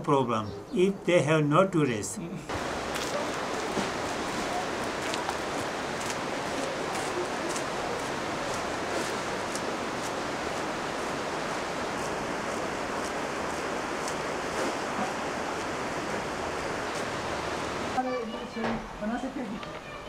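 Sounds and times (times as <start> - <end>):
steady rushing noise: 2.5 - 18.0.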